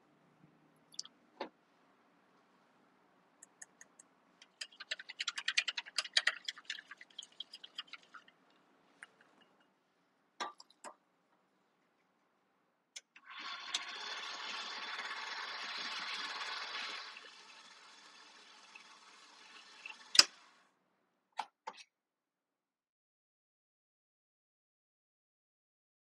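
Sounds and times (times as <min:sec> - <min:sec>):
whisk ticking against ceramic bowl: 0:03.8 - 0:08.4
stand mixer running: 0:13.4 - 0:20.2.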